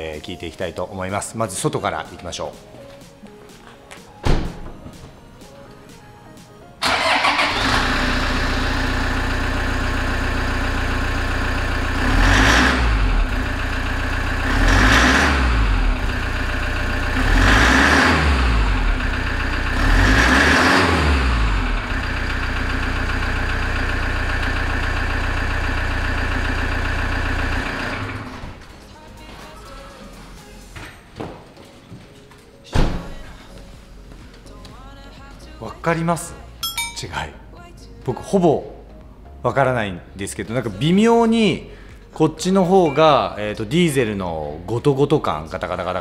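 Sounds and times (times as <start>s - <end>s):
diesel engine revving: 6.8s - 28.6s
diesel engine starting and idling: 6.8s - 28.8s.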